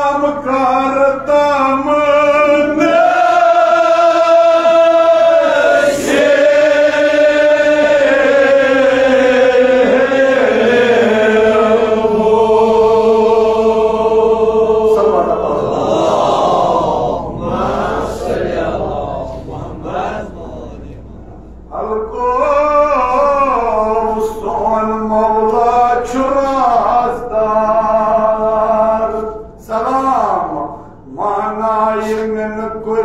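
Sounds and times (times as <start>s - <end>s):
men chanting an elegy: 0.0s - 21.1s.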